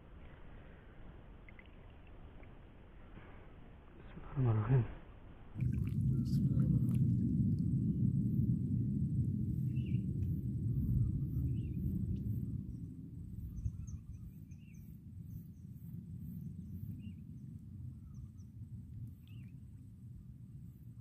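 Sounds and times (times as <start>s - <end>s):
low uneven rumble: 0.0s - 21.0s
faint bird chirps: 1.3s - 2.7s, 10.8s - 19.7s.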